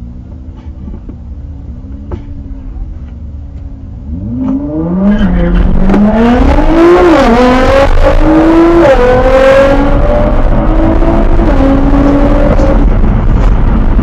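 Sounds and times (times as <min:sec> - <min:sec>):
road and wind noise: 0:00.0 - 0:14.0
car engine accelerating: 0:00.9 - 0:14.0.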